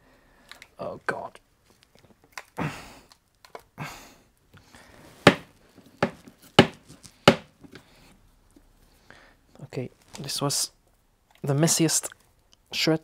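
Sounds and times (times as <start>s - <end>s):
sharp knocks: 5.2s - 7.5s.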